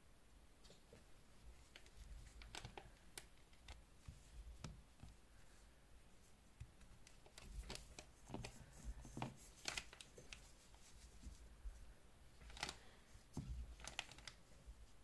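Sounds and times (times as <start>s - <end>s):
small clicks and rustles handling watch: 1.6s - 5.2s, 6.7s - 11.4s, 12.4s - 12.9s, 13.6s - 14.5s.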